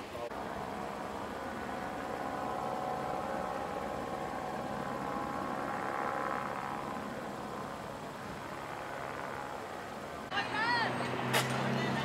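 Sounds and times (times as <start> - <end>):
faint whine: 0.0 - 10.9
vehicle engine idling: 0.1 - 12.0.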